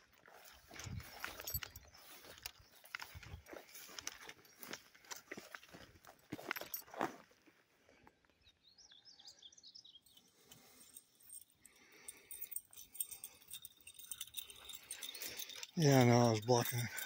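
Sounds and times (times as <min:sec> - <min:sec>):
footsteps through tall grass: 0:00.0 - 0:07.3
small bird chirping: 0:00.5 - 0:05.0, 0:08.4 - 0:11.2.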